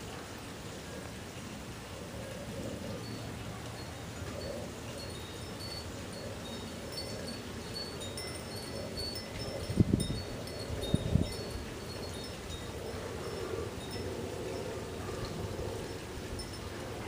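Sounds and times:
high tinkling tones: 4.5 - 15.8.

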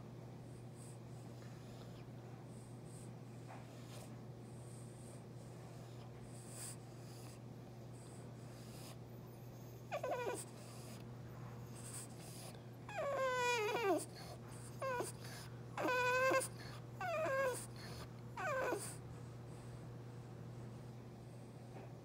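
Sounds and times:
dog whining: 9.6 - 11.0, 11.7 - 19.0.

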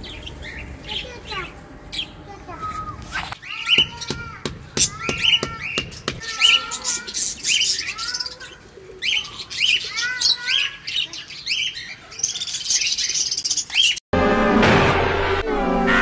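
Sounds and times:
budgies chirping and chattering: 0.0 - 2.2, 4.8 - 14.0
cartoon sound clip with music: 14.2 - 16.0.

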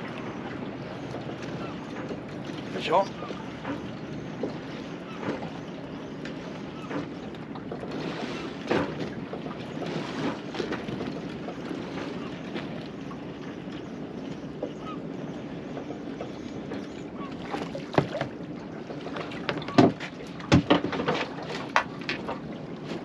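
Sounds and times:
water lapping against boat hull: 0.0 - 23.0
sharp knocks on hull: 8.6 - 9.2, 17.6 - 18.4, 19.4 - 22.4.

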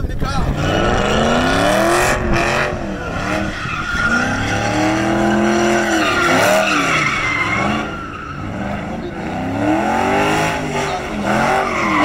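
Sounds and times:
car engine revving: 0.4 - 12.0
tyres squealing on pavement: 2.8 - 12.0.

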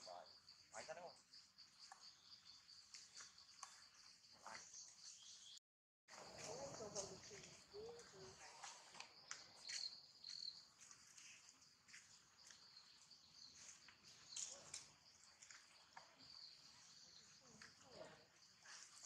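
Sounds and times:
insect chorus: 0.0 - 19.0.

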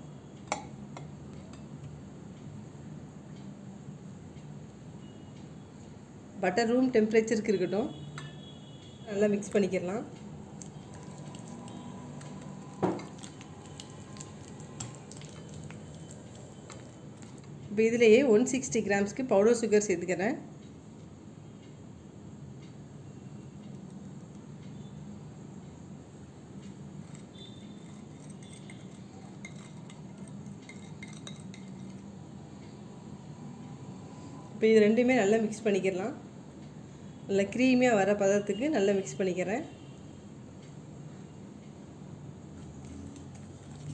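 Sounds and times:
low steady hum: 0.0 - 22.0
whisk clicking against glass: 27.1 - 32.0
glass clinking against bowl: 27.8 - 32.0.

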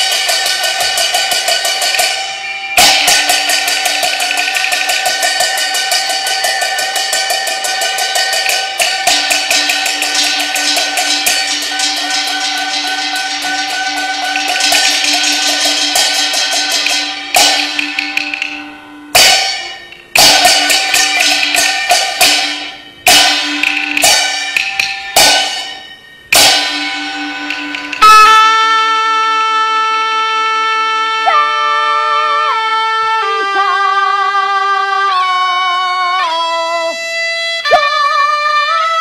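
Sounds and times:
gongs and cymbals crashing: 0.0 - 29.7
steady held tone: 0.0 - 38.8.

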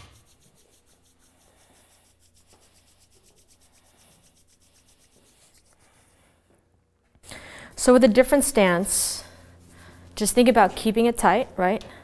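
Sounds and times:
hands rubbing together: 0.0 - 6.5.

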